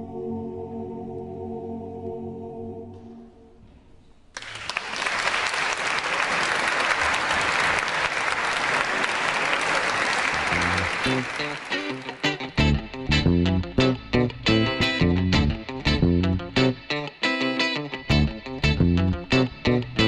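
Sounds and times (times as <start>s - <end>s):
audience applause: 4.3s - 12.5s
guitar music: 10.4s - 20.0s.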